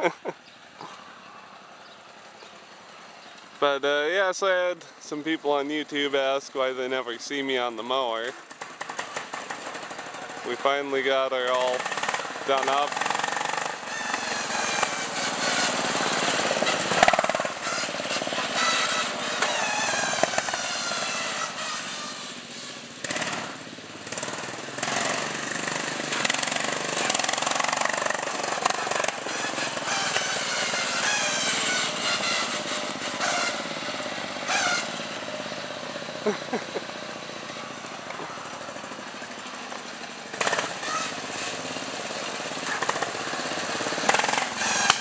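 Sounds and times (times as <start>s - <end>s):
lawn tractor engine running rough: 7.9s - 45.0s.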